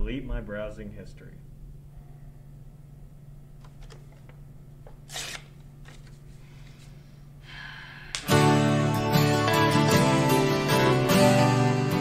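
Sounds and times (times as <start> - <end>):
steady low hum: 0.0 - 8.3
guitar music: 8.2 - 12.0.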